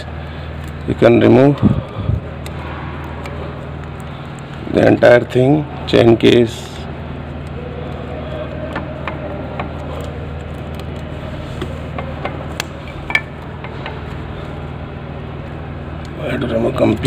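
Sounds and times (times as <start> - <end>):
steady low hum: 0.0 - 17.0
spanner and bolts clinking: 11.8 - 14.1.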